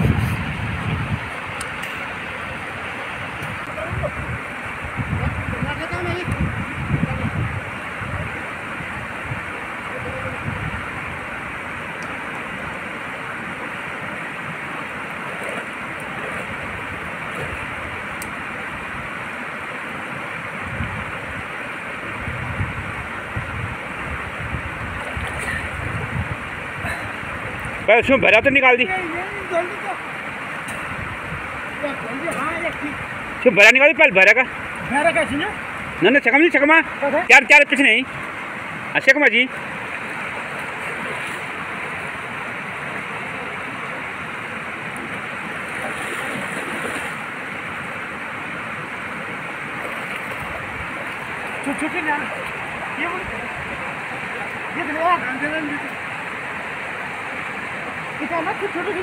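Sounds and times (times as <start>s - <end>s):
river water flowing: 0.0s - 59.0s
swimmer splashing: 11.3s - 20.4s, 38.6s - 59.0s.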